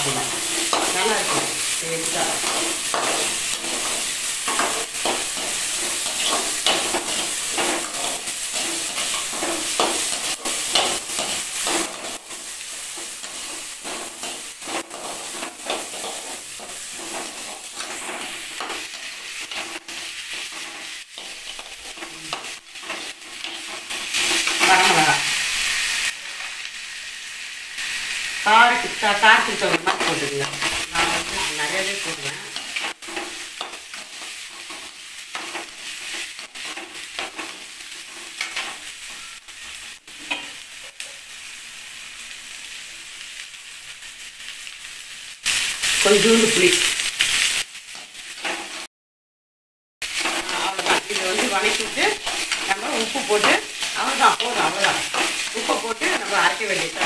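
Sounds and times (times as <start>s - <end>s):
person speaking: 0.0s - 2.6s, 24.6s - 25.3s, 28.4s - 32.6s, 46.0s - 46.9s, 50.4s - 57.0s
food sizzling in oil: 0.0s - 48.9s, 50.0s - 57.0s
metal spoon scraping pan: 0.1s - 25.0s, 50.1s - 57.0s.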